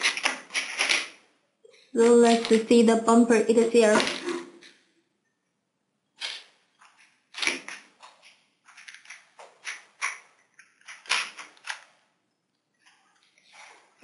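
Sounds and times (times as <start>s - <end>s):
plastic scrapes and clicks: 6.2s - 12.0s.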